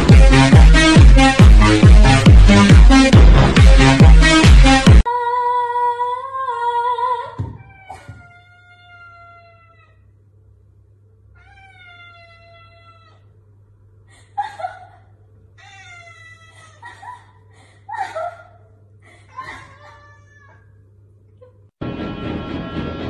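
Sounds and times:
cat meowing: 7.5s - 10.1s, 11.4s - 13.3s, 15.6s - 16.8s, 19.5s - 20.7s.

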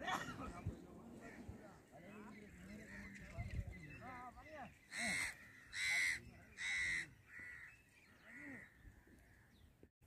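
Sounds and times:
crows cawing: 4.9s - 9.7s.

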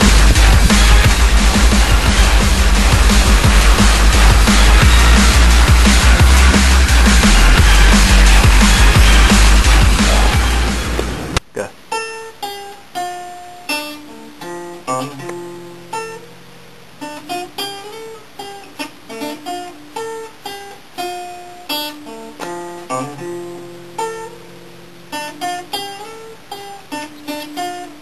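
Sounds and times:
classical acoustic guitar melody: 11.9s - 28.0s.

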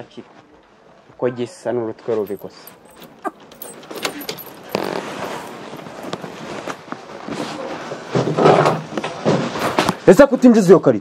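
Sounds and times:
glass door rattling: 2.4s - 5.7s.

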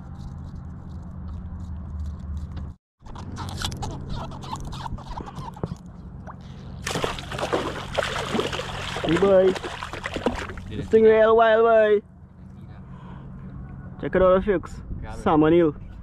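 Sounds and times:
eel thrashing and splashing: 6.8s - 10.7s.

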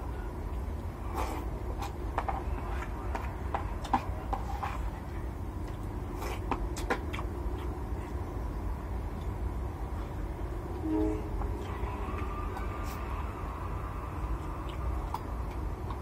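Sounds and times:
steady low hum: 0.0s - 16.0s
chewing and smacking: 0.4s - 10.2s, 14.2s - 16.0s.

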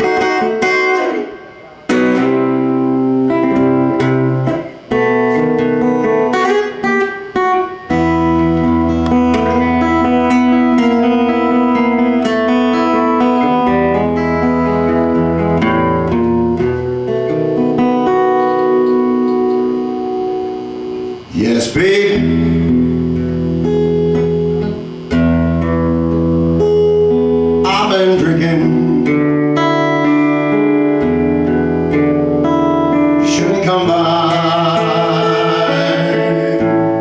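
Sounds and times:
acoustic-electric guitar through amplifier: 0.0s - 37.0s.

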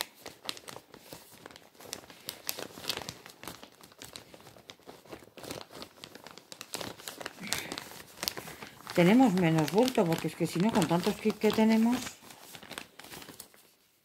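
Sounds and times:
plastic bag crinkling: 0.0s - 14.0s.

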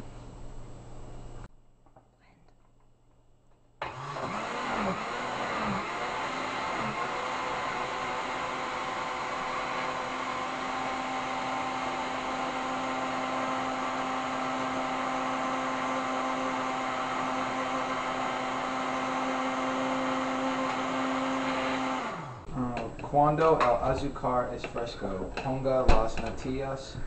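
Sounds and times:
electric blender running: 3.8s - 23.0s.

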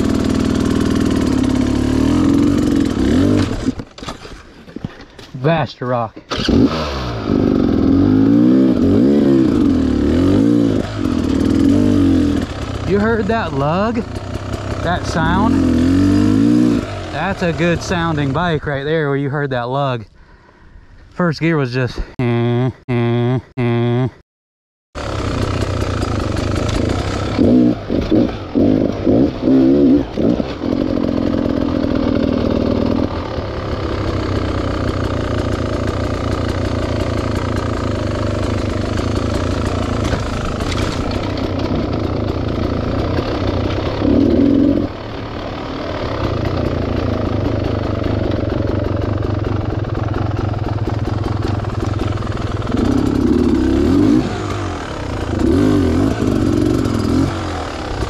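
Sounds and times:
dirt bike engine running: 0.0s - 19.4s, 25.0s - 58.0s.

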